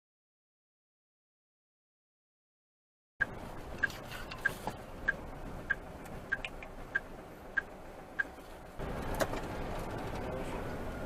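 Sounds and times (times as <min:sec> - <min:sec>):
engine and road noise: 0:03.2 - 0:11.0
indicator flasher ticking: 0:03.8 - 0:08.3.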